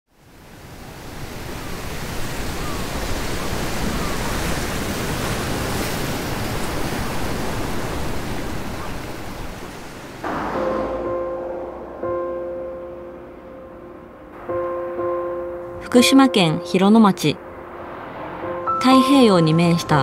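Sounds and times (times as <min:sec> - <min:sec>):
ocean waves washing: 0:00.2 - 0:20.0
music with held notes: 0:10.2 - 0:20.0.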